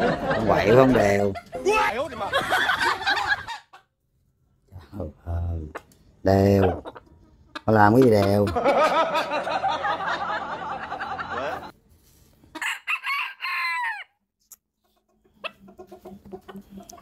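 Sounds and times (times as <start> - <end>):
rooster crowing: 12.6 - 14.2.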